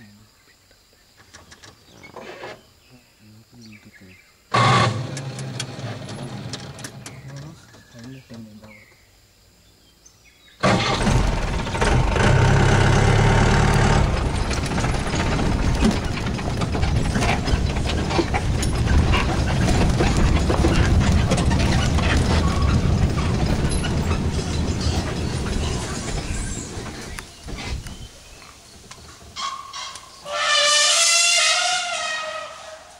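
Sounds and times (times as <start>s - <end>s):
jeep body rattling and knocking: 4.6s - 8.8s, 10.6s - 30.7s
steady engine note: 10.7s - 15.6s.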